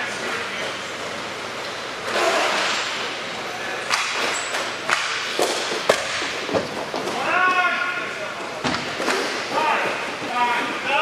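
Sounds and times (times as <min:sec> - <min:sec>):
hockey sticks clacking: 0:03.8 - 0:07.7, 0:08.4 - 0:10.9.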